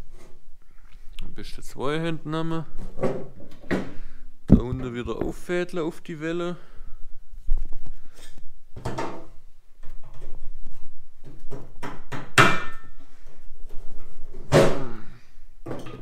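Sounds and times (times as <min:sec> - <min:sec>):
heavy thunk: 0:04.5 - 0:05.4.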